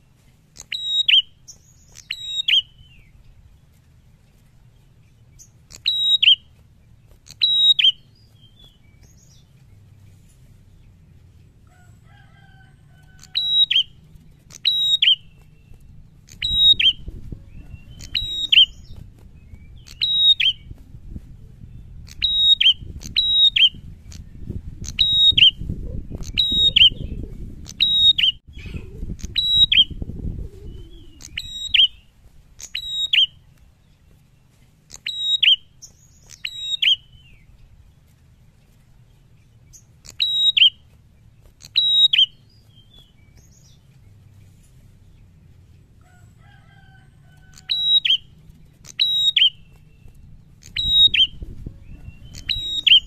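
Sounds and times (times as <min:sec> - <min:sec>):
bird giving sharp high calls: 0:00.6 - 0:02.8, 0:05.6 - 0:06.6, 0:07.2 - 0:09.4, 0:12.5 - 0:15.4, 0:16.3 - 0:19.0, 0:26.2 - 0:27.1, 0:30.7 - 0:33.4, 0:34.9 - 0:37.3, 0:39.8 - 0:40.8, 0:41.5 - 0:43.6, 0:46.1 - 0:53.0
low rustling rumble: 0:02.7 - 0:05.8, 0:08.0 - 0:34.9, 0:37.0 - 0:40.0, 0:42.3 - 0:46.4, 0:49.5 - 0:53.0.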